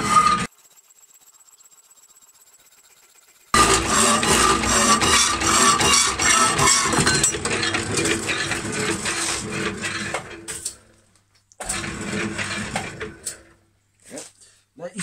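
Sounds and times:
bandsaw cutting steel bar: 0.0 - 0.5, 3.6 - 10.8, 11.6 - 13.5.

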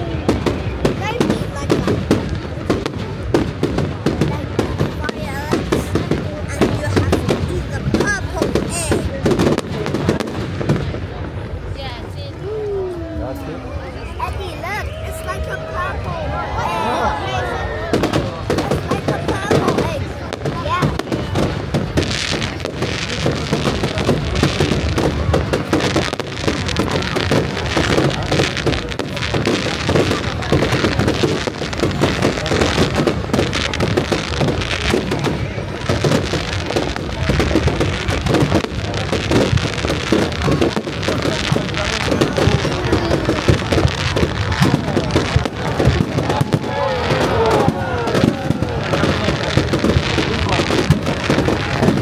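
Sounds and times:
fireworks bangs and crackles: 0.0 - 52.0.

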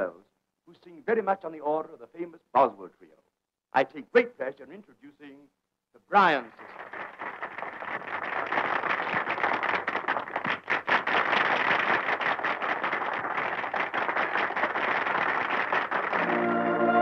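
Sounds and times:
audience applauding: 6.2 - 17.0.

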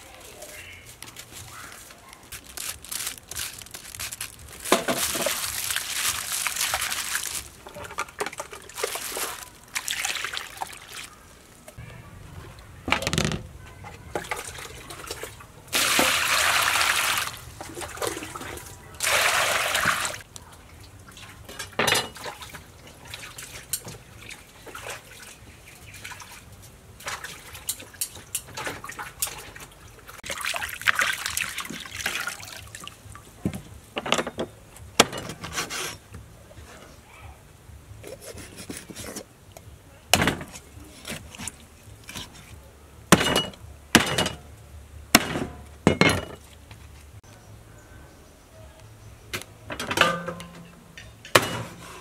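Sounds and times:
water splashing and sloshing: 0.0 - 11.8, 13.7 - 36.1, 40.1 - 44.5
water pouring into metal basin: 14.2 - 20.2.

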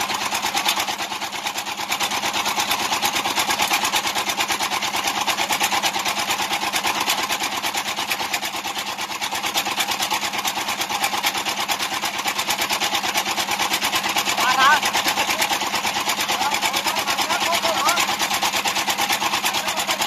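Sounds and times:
small engine clattering: 0.0 - 20.0.

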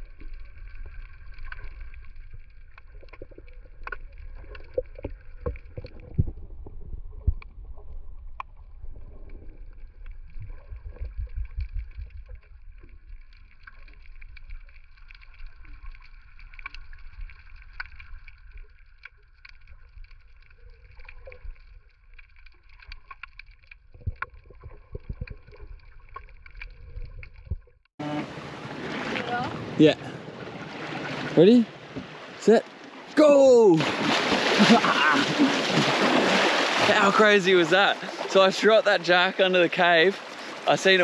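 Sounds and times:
clicks and crackles: 0.0 - 27.9
underwater rumble of moving water: 0.0 - 33.1, 33.8 - 41.0.

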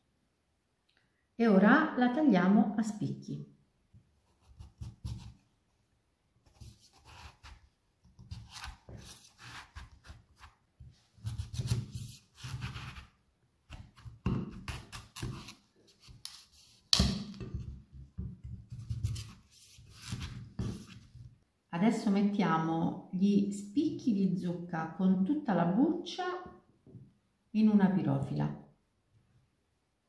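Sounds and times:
cleaver chopping pumpkin on wooden board: 13.7 - 15.5.

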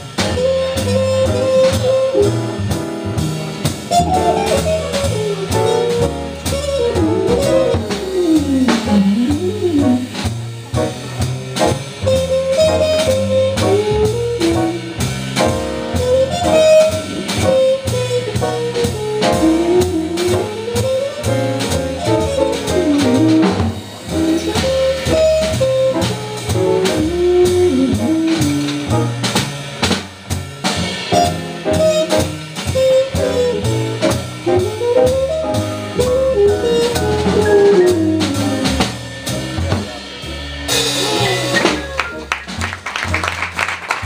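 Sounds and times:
drum kit: 0.0 - 44.0
upright bass: 0.0 - 44.0
trumpet solo: 0.2 - 2.6, 3.9 - 10.1, 12.1 - 14.9, 16.0 - 28.7, 31.2 - 38.8.

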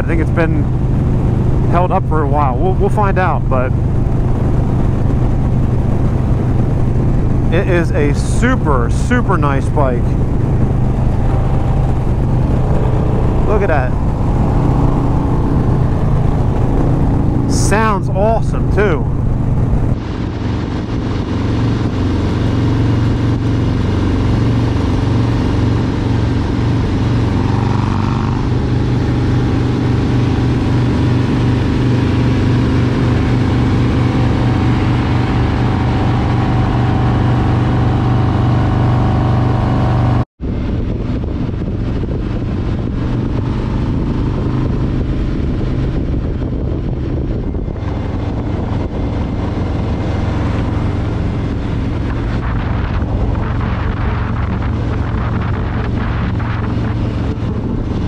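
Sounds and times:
motorcycle engine at road speed: 0.0 - 58.0
road and wind noise: 0.0 - 58.0.

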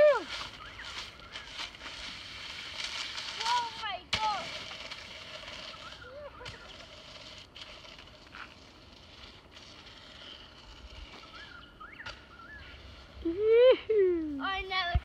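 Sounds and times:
distant chirping calls: 11.1 - 13.2.

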